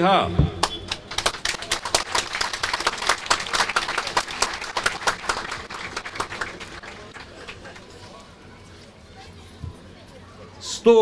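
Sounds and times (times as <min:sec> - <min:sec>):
crowd applauding: 0:00.6 - 0:07.9.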